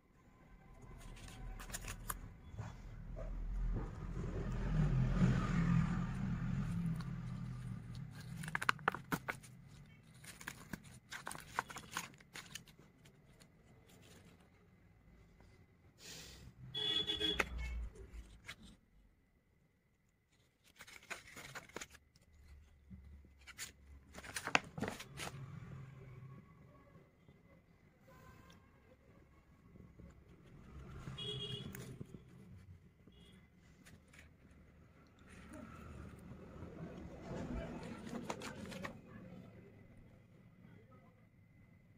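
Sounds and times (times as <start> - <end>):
page turning: 0.8 - 2.4, 6.4 - 14.6, 17.2 - 18.8, 20.3 - 25.8, 37.4 - 39.3
paper rustling: 0.8 - 2.8, 6.2 - 14.8, 17.3 - 18.8, 20.3 - 25.8, 30.0 - 36.3, 37.4 - 39.4.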